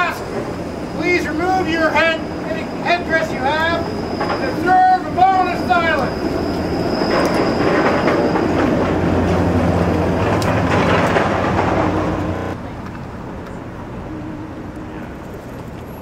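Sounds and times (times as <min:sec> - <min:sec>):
streetcar rumbling on tracks: 0:00.0 - 0:16.0.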